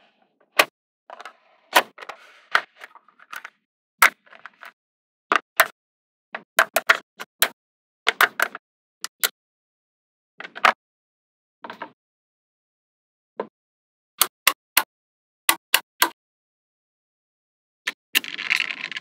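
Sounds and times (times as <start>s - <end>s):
balls rolling and rattling: 18.2s - 19.0s.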